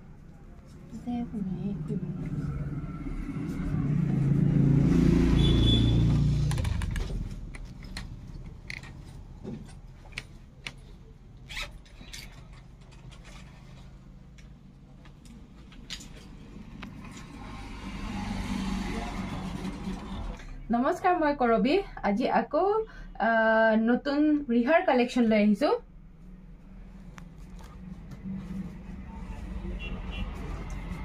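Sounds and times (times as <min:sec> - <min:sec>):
vehicle rumble: 0:00.0 - 0:20.7, 0:25.9 - 0:31.0
handling clicks and rustles: 0:06.5 - 0:17.0.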